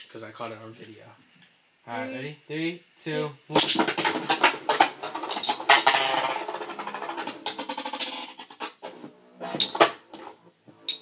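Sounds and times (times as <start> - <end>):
spinning tops whirring and clattering: 3.6 - 8.8.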